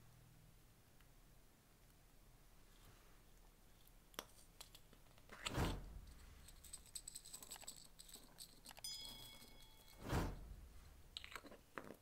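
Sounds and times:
sequins rattling in jar: 6.1 - 10.0.

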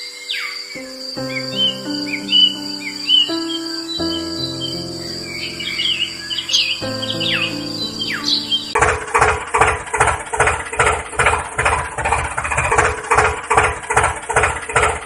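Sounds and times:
tractor engine chugging: 8.8 - 15.0.

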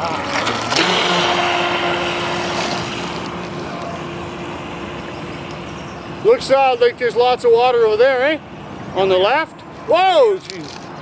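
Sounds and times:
electric motor whining: 0.0 - 6.2.

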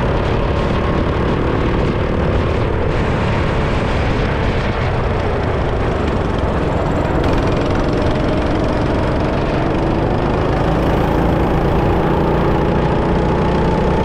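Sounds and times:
rushing rumble: 0.0 - 14.0
go-kart engine revving: 5.0 - 14.0.

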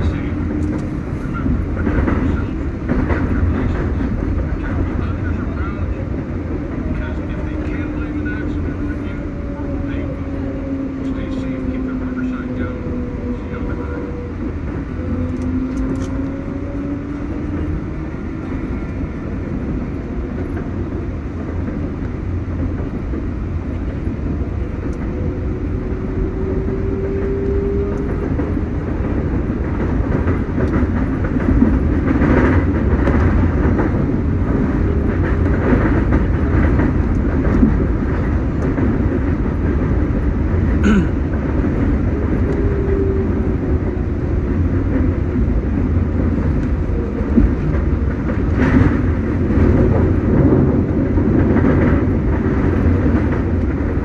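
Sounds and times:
wheels rumbling on rail: 0.0 - 54.0
traction motors whining: 7.0 - 19.1.

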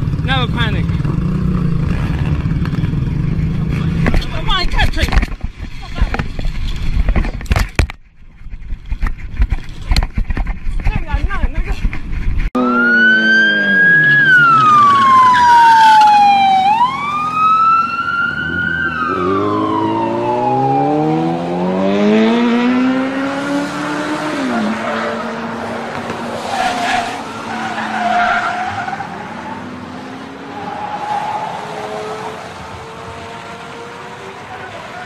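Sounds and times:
vehicle engine revving: 0.0 - 4.6, 18.3 - 35.0
police siren wailing: 12.6 - 22.4, 26.5 - 35.0.

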